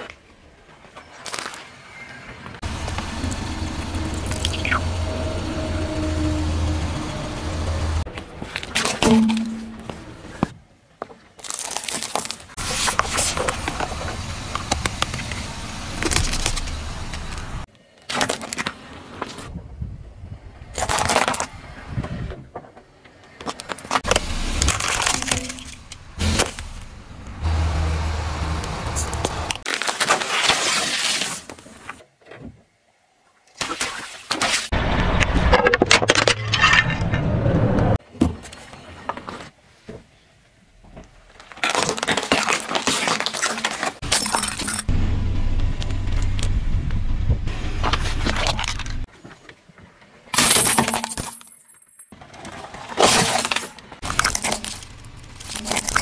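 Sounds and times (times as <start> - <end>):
tyre and road noise: 0.8 - 10.6, 11.4 - 29.8, 34.7 - 50.2, 52.1 - 56.0
plastic cracking under tyre: 16.0 - 17.5, 41.3 - 44.0, 53.0 - 56.0.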